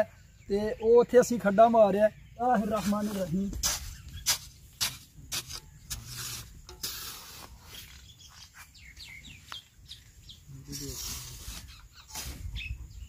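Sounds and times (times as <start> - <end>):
spade scraping dry soil: 2.6 - 8.7, 10.5 - 13.0.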